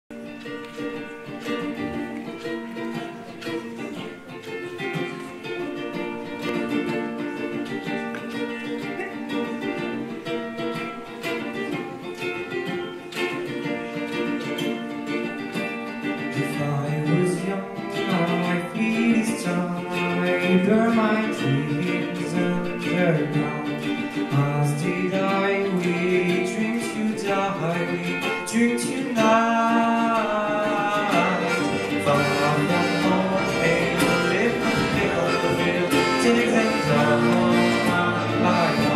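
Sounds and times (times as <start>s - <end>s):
ukulele and strings playing: 0.1s - 38.9s
person singing: 16.2s - 38.9s.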